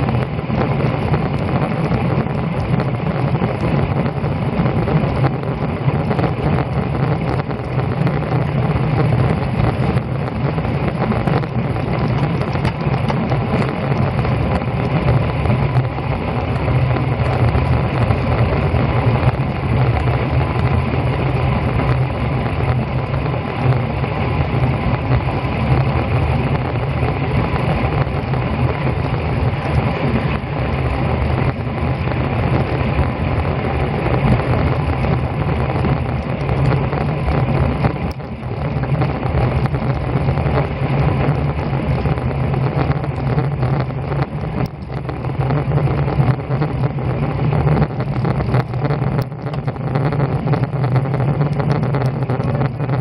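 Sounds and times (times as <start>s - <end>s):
wind buffeting microphone: 0.0s - 53.0s.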